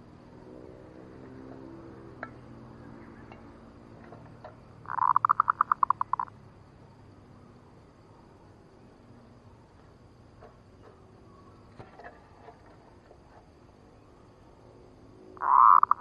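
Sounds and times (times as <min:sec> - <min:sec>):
dove cooing: 0:04.8 - 0:06.3, 0:15.4 - 0:16.0.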